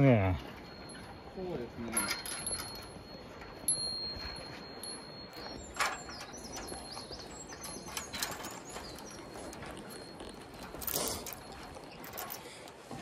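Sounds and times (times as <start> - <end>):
footsteps on mountain trail: 2.2 - 13.0
high chirping calls: 5.1 - 10.4.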